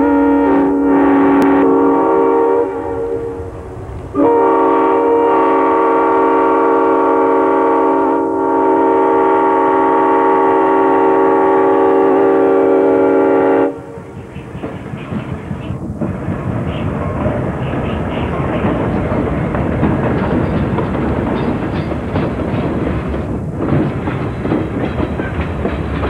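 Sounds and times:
locomotive air horn blasts: 0.0 - 3.5, 4.1 - 14.2
locomotive engine and wheel noise: 13.8 - 26.0.

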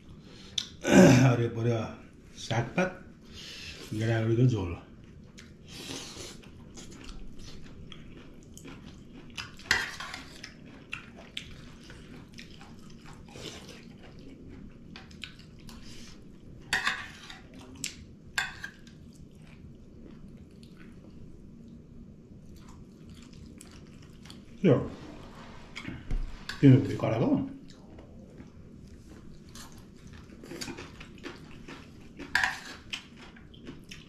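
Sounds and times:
chewing: 5.0 - 21.8, 22.4 - 24.6, 27.5 - 34.0.

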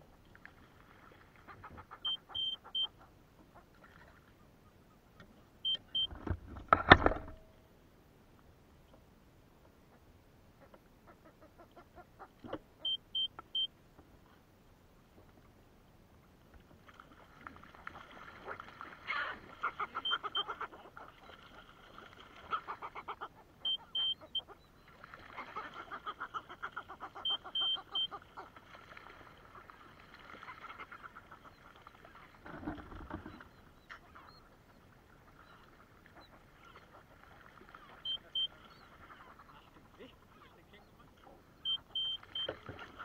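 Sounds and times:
seabirds cackling: 1.3 - 6.1, 17.9 - 43.0
short high beeps: 2.1 - 2.9, 12.9 - 13.7, 23.7 - 24.2, 38.0 - 38.5, 41.6 - 42.6.

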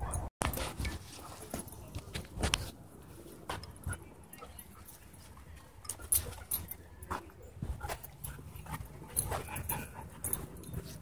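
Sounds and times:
dogs play-fighting: 3.4 - 11.0.

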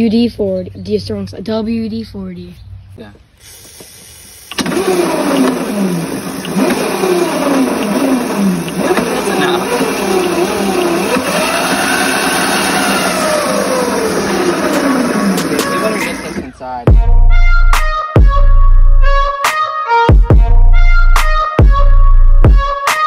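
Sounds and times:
electric motor and chain whining: 3.4 - 16.6.

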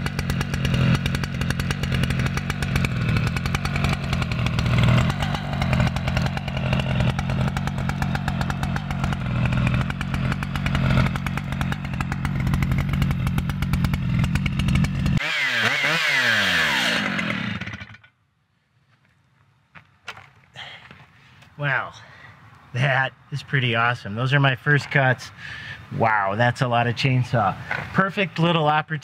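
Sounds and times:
chainsaw cutting log: 0.0 - 18.1
chainsaw idling: 0.0 - 18.1.

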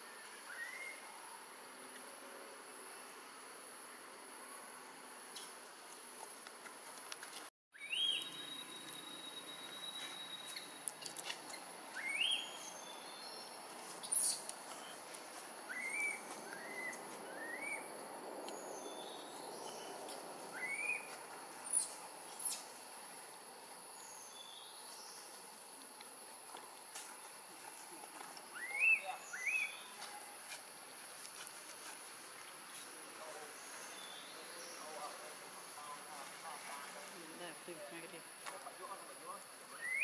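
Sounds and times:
rising whistled calls: 0.0 - 1.1, 7.8 - 10.8, 11.5 - 15.0, 15.7 - 17.9, 18.6 - 22.6, 28.5 - 30.0, 39.7 - 40.0.

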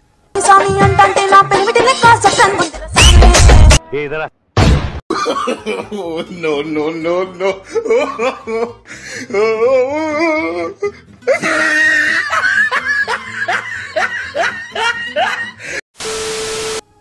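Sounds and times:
background music: 0.4 - 4.3, 5.1 - 15.8
person laughing: 5.1 - 10.7, 11.3 - 15.8.

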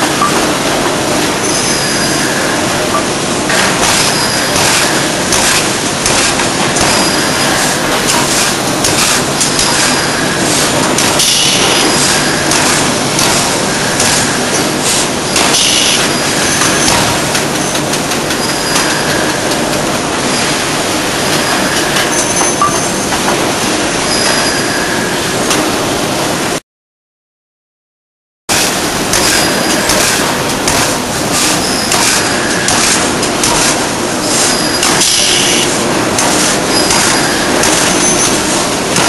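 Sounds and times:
ring rolling machine running: 0.0 - 26.6, 28.5 - 39.0
high squeals: 1.4 - 2.6.

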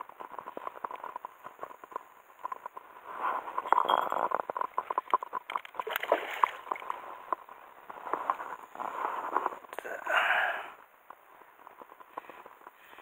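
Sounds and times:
rapid clicks and crackles: 0.0 - 9.8, 10.8 - 13.0
water splashing and gurgling: 4.6 - 7.2.

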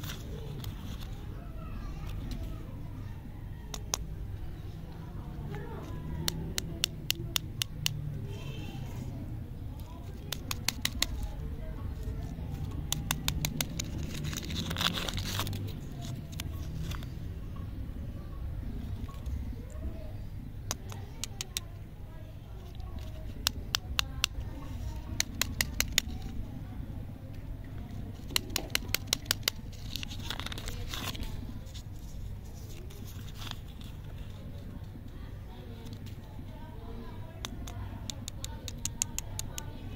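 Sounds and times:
sharp plastic clicks: 3.7 - 4.1, 6.2 - 8.1, 10.1 - 11.4, 12.2 - 17.1, 20.6 - 21.7, 22.8 - 26.4, 28.2 - 31.4, 37.4 - 39.8
candy wrapper crinkling: 9.8 - 17.1, 28.1 - 34.7
wrapper tearing: 13.0 - 17.0, 28.2 - 31.9.

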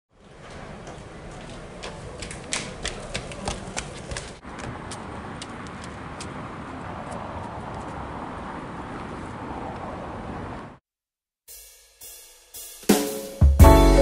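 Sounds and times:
hard footsteps on stone paving: 0.4 - 6.4.

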